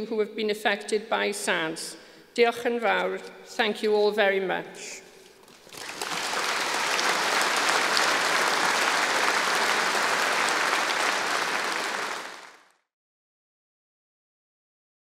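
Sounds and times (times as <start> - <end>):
large audience applauding: 5.4 - 12.8.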